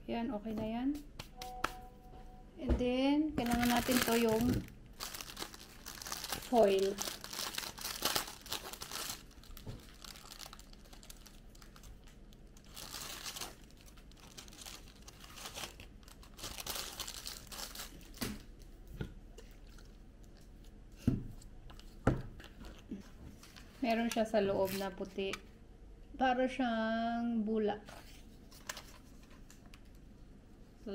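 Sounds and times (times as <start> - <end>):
plastic bag crinkling: 3.4 - 18.5.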